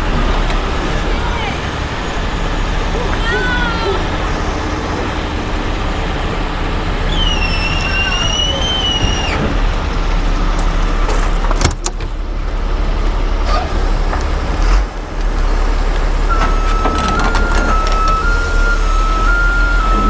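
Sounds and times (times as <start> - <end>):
diesel engine running: 0.0 - 20.0
high whine: 16.3 - 20.0
thin tone stepping in pitch: 16.3 - 20.0.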